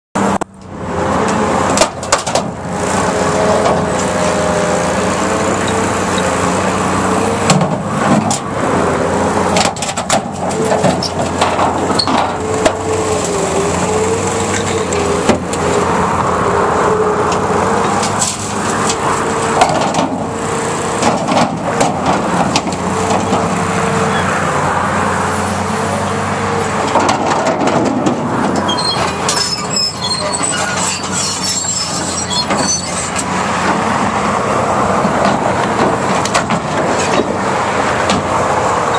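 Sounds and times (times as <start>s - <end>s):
excavator diesel engine: 0.2s - 38.9s
steel clanking and banging: 9.5s - 13.1s, 20.9s - 23.6s, 26.8s - 33.8s.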